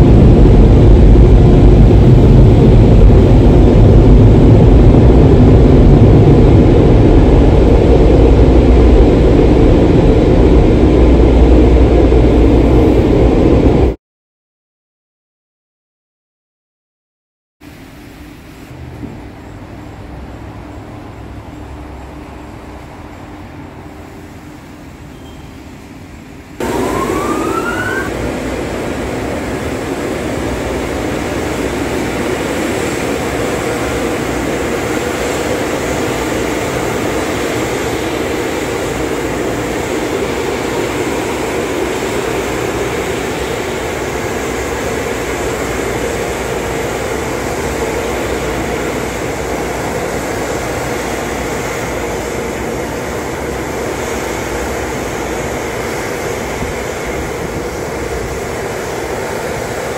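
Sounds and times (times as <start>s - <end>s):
car wash air dryer blowers: 25.7s - 59.9s.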